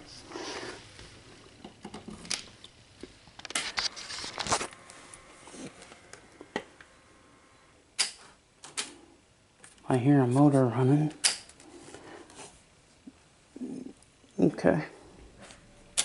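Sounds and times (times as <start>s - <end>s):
motor whine: 3.8s - 7.8s.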